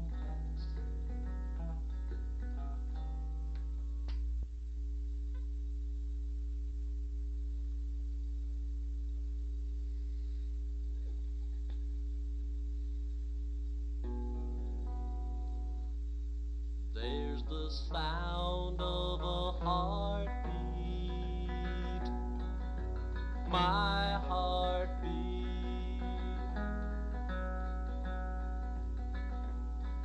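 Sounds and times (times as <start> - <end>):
acoustic guitar picking: 0.0 - 4.2, 17.0 - 30.0
low tape hum: 0.0 - 30.0.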